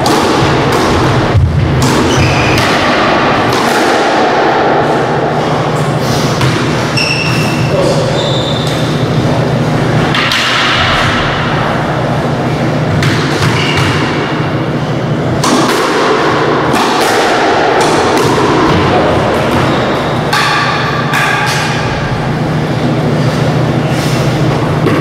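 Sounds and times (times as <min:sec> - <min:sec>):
squash ball hits: 0:00.0 - 0:05.4, 0:06.2 - 0:07.7, 0:10.0 - 0:12.0, 0:12.9 - 0:14.6, 0:15.3 - 0:22.0
steady low hum: 0:00.0 - 0:25.0
shoe squeaks on court floor: 0:06.9 - 0:09.0.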